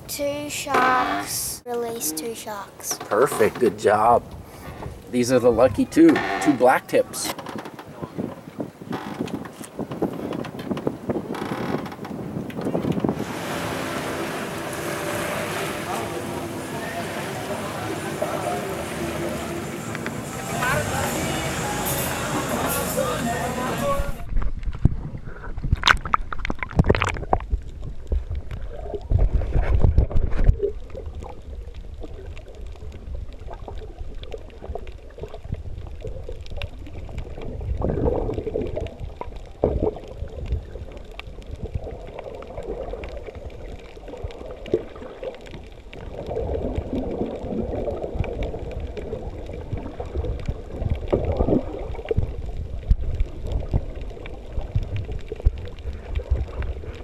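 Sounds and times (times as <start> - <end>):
splashing at water surface: 13.2 - 24.2
muffled underwater bubbles gurgling: 28.6 - 57.0.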